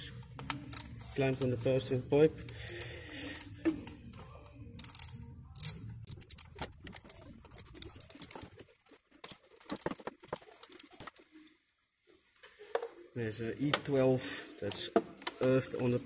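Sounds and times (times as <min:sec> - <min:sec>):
clamp and hose rattling: 0:04.8 - 0:08.6.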